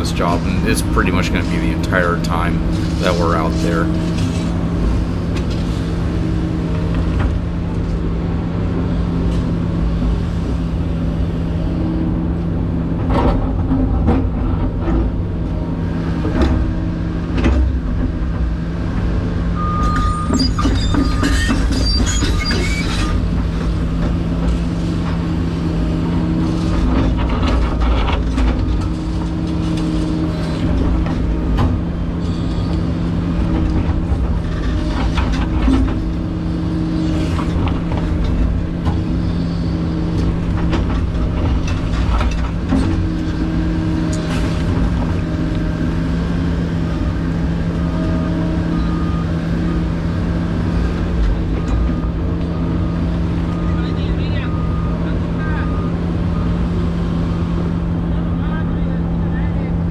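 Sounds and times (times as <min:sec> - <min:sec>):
excavator diesel engine running: 0:00.0 - 0:59.9
hydraulics working: 0:00.0 - 0:59.9
high squeaks and scrapes: 0:19.8 - 0:23.3.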